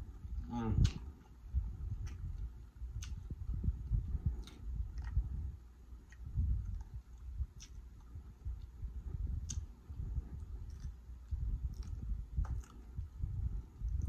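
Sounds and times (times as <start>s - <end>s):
chewing: 0.8s - 3.5s, 4.1s - 5.4s, 6.0s - 8.8s, 9.4s - 14.0s.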